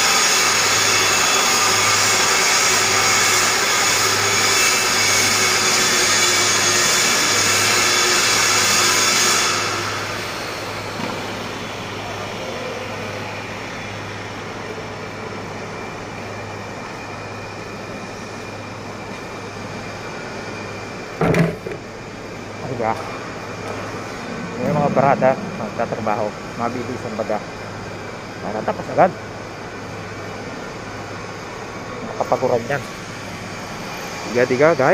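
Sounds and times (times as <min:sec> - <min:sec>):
grinder whining on metal: 0:00.0 - 0:13.3
workshop machinery hum: 0:00.0 - 0:34.9.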